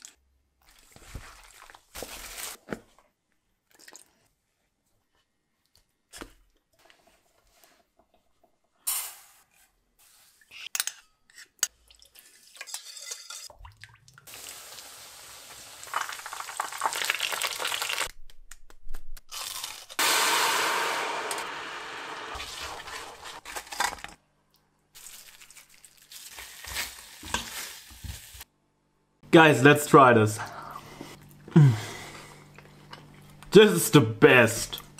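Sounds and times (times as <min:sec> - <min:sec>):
steady hissing sizzle: 0:14.3 - 0:16.9
crunchy handling of coated chicken: 0:24.9 - 0:27.7.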